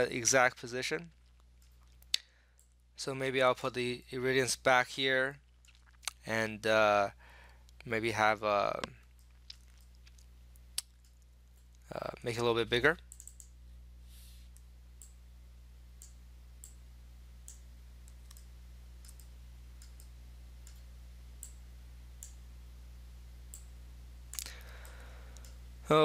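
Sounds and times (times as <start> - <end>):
low electrical hum: 0.0 - 26.0
computer mouse clicking: 13.1 - 13.5, 17.5 - 20.8.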